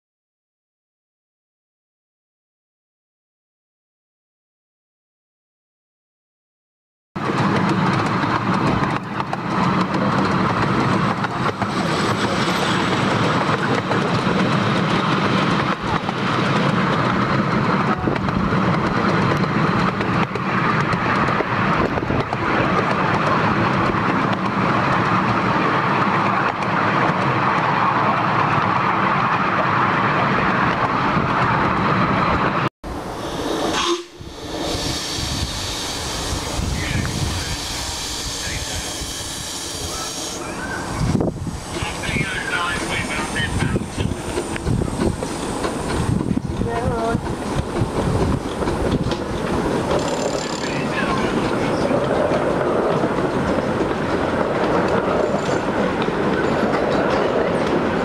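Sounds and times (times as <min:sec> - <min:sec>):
miniature train running on track: 0:07.2 - 0:27.8, 0:34.3 - 0:58.0
steam hiss: 0:33.0 - 0:40.8.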